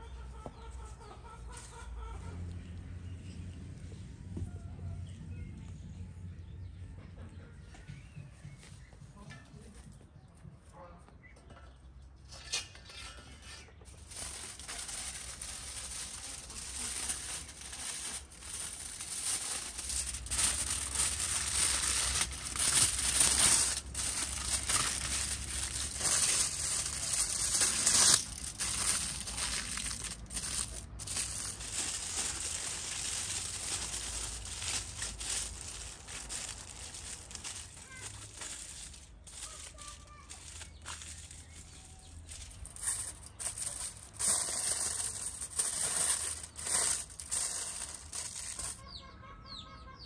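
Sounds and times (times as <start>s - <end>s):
aluminium foil crinkling: 12.3s - 48.9s
foil tearing: 13.9s - 48.8s.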